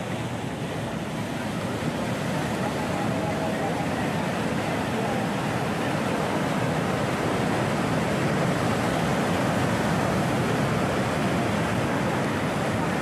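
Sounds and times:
sea surf washing over rocks: 0.0 - 13.0.

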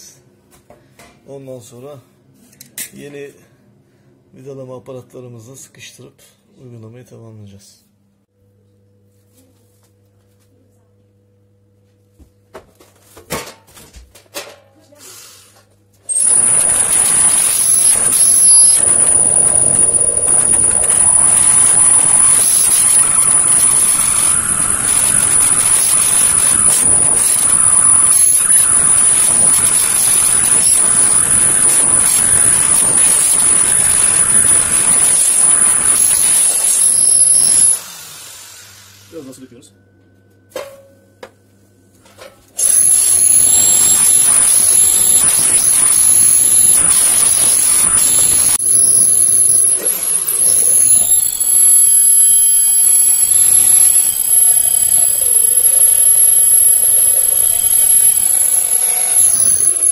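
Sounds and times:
drill bit grinding metal: 16.1 - 39.0, 42.6 - 59.9
electric drill whining: 16.1 - 39.1, 42.6 - 59.9.

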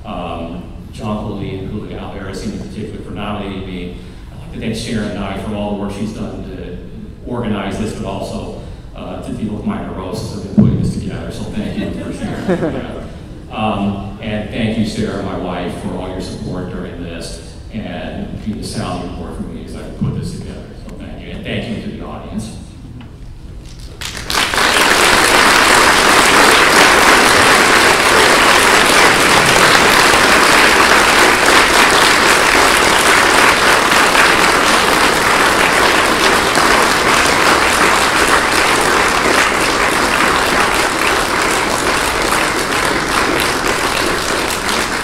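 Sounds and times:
audience applauding: 23.7 - 45.0.

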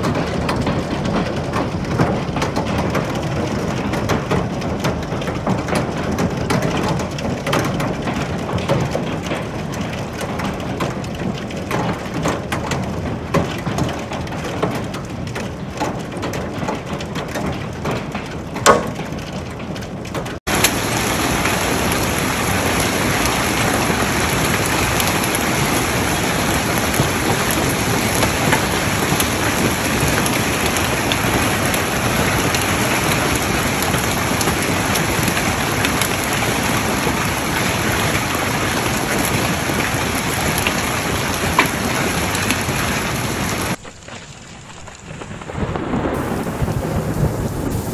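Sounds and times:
hail pelting a roof: 0.0 - 47.9
wind-driven hail and rain: 0.0 - 47.9
loud knock: 18.6 - 19.1.

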